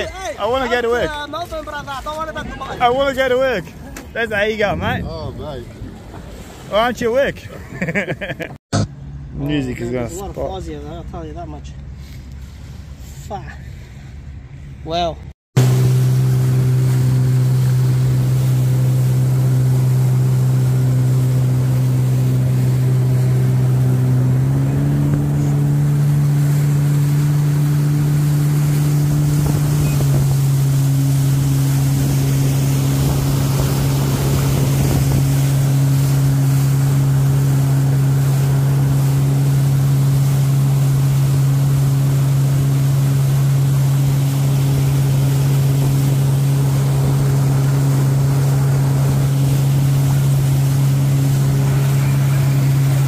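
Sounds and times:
jet ski engine running: 15.5s - 53.0s.

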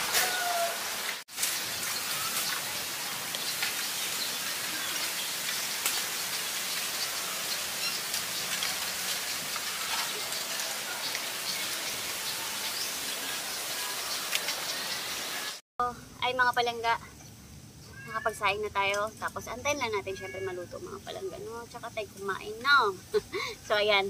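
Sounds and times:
wood fire crackling: 1.2s - 14.8s.

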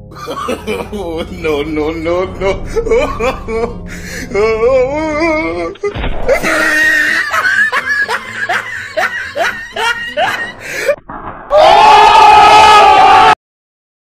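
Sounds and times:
loud laughter: 0.2s - 3.8s, 5.7s - 11.0s
wavering voice-like sound: 0.9s - 6.0s.

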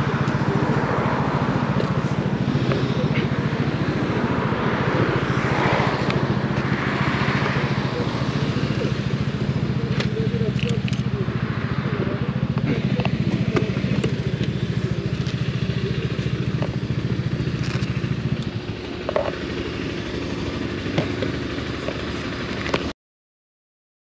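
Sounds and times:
motorcycle engine idling: 0.0s - 22.9s.

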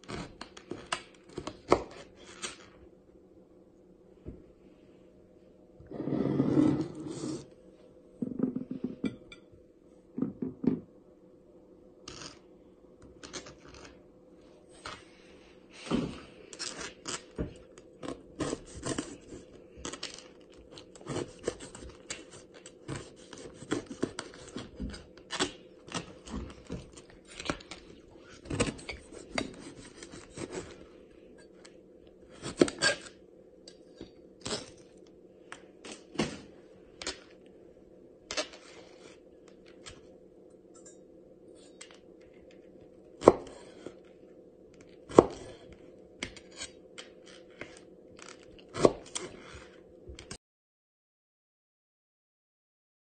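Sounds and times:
faint steady hum: 0.0s - 50.4s
knife cutting pineapple: 20.9s - 27.7s, 28.4s - 30.8s, 45.1s - 46.8s.

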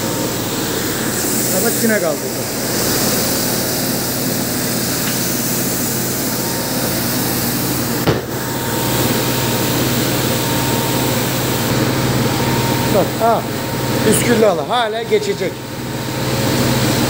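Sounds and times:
carpet-washing machine motor hum: 0.0s - 17.0s
water spraying hiss: 0.2s - 11.6s
sharp knock: 8.0s - 8.3s.

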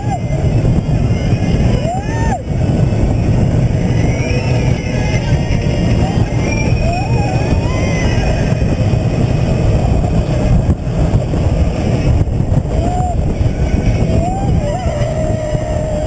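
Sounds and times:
roller coaster train rumbling on track: 0.0s - 16.0s
wind buffeting microphone: 0.0s - 16.0s
rider yelling: 12.6s - 16.0s.

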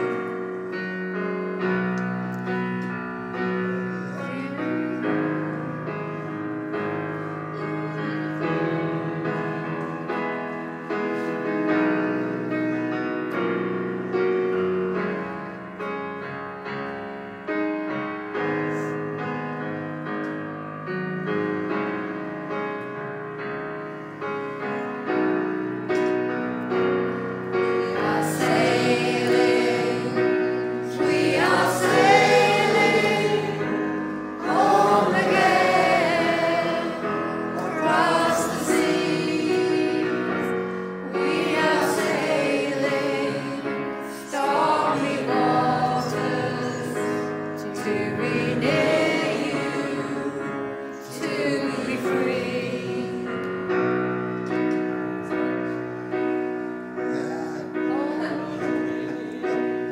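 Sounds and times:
held keyboard chords: 0.0s - 59.9s
choir singing: 27.1s - 54.1s.

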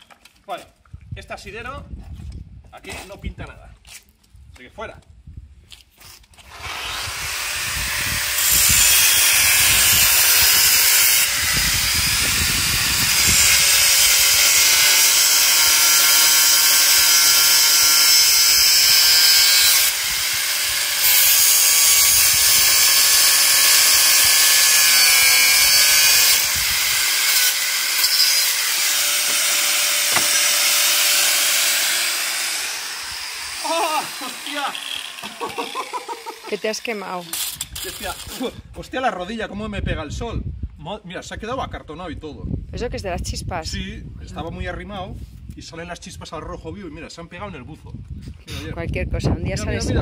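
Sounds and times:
angle grinder cutting steel: 6.5s - 38.6s.

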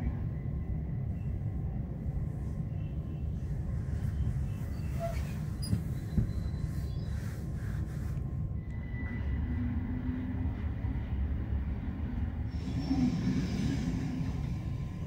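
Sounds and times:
train low rumble: 0.0s - 15.0s.

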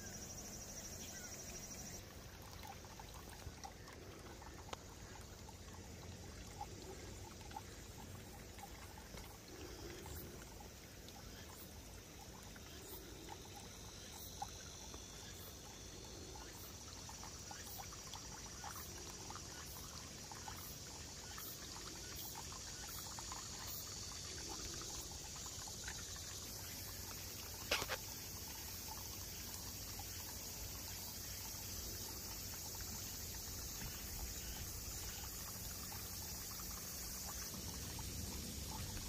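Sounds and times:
small ticks and pops: 4.4s - 5.6s, 23.6s - 29.0s.

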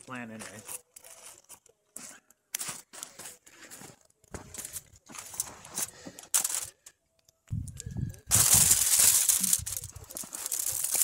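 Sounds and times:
footsteps crunching on snow: 0.3s - 6.1s.

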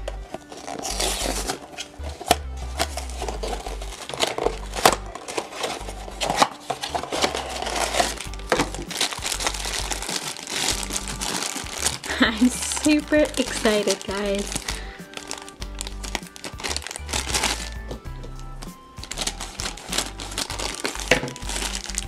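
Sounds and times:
background music with bass line: 0.0s - 22.0s
foil bag crinkling: 0.0s - 22.0s
cardboard box opening: 0.2s - 17.8s.

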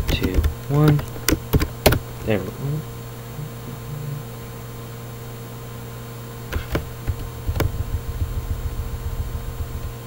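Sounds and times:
keyboard key clicks: 0.0s - 2.0s
electrical hum: 0.0s - 10.0s.

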